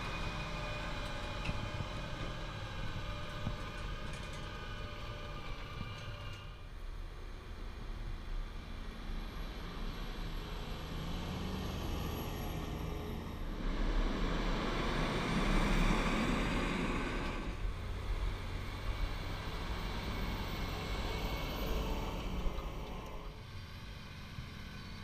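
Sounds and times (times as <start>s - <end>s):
tractor diesel engine running: 0.0s - 7.1s.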